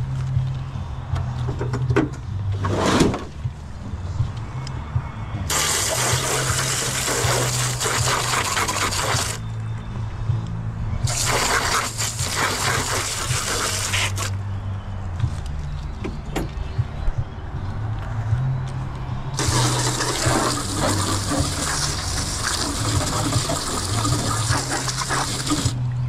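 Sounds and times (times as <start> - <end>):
water spraying from a hose: 5.5 - 9.4, 11.0 - 14.3, 19.4 - 25.8.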